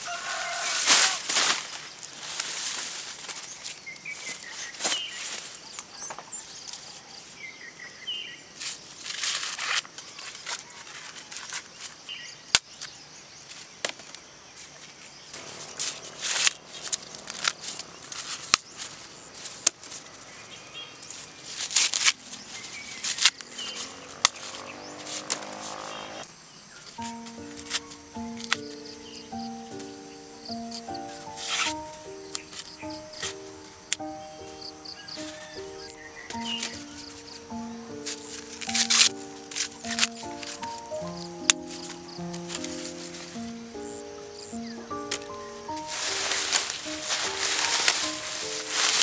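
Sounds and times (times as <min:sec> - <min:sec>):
corn husks rustling and tearing: 0:00.0 - 0:07.0, 0:08.6 - 0:26.3, 0:26.9 - 0:49.0
sharp snaps: 0:27.0 - 0:43.9.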